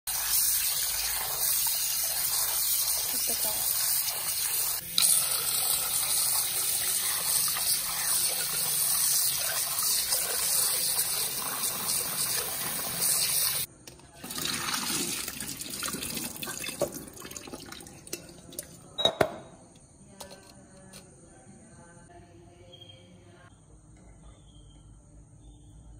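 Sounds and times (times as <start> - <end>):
water splashing and dripping: 0.1 - 18.8
tap water running into bowl: 3.6 - 18.8.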